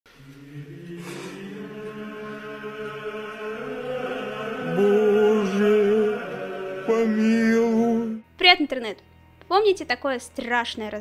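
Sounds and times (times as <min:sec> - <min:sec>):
chant-like drone music: 0:00.1 - 0:08.3.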